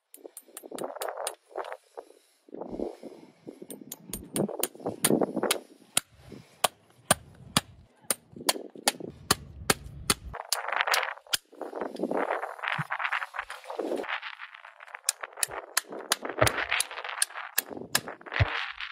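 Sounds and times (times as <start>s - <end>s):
hammer tapping horseshoe nails: 0.0s - 1.4s, 3.7s - 7.7s.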